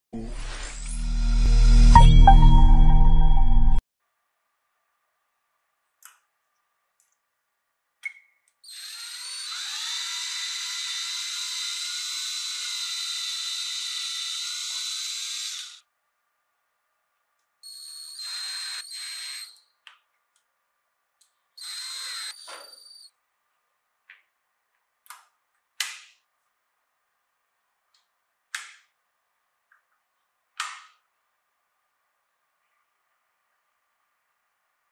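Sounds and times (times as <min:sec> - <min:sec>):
power drill boring into wood: 0:08.7 - 0:15.8, 0:17.7 - 0:19.7, 0:21.6 - 0:23.1.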